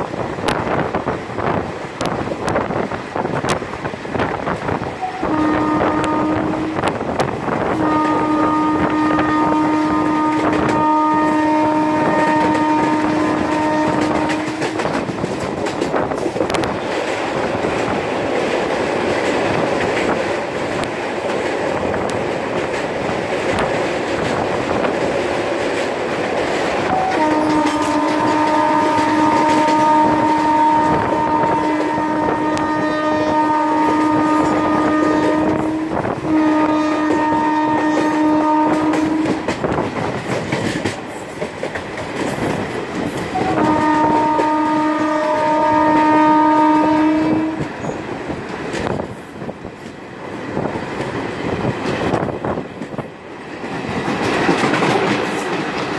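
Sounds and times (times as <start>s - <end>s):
train wheels clickety-clack: 0.0s - 55.9s
locomotive air horn blasts: 5.0s - 7.0s, 7.6s - 15.0s, 26.9s - 39.5s, 43.3s - 47.9s.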